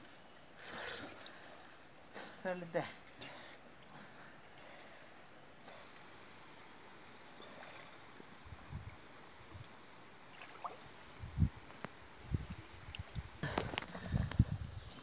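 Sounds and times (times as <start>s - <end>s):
high-pitched insect buzz: 8.7s - 15.0s
water sloshing and splashing: 10.3s - 10.9s.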